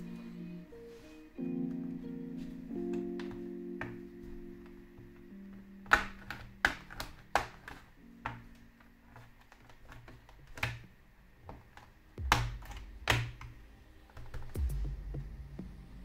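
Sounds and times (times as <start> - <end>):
soft background music: 0.0 - 16.0
plastic clips snapping loose: 9.2 - 10.8.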